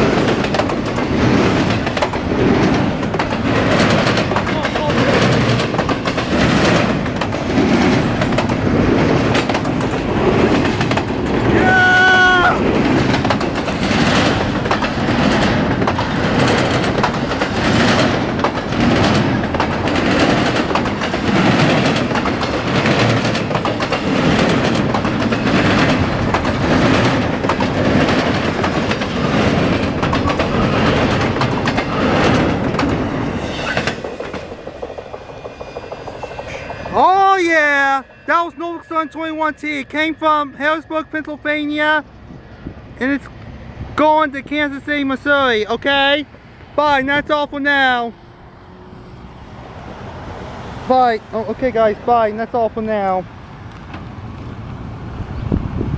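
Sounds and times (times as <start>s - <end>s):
freight train wheels clattering: 0.0s - 42.0s
high ringing tone: 35.1s - 42.6s.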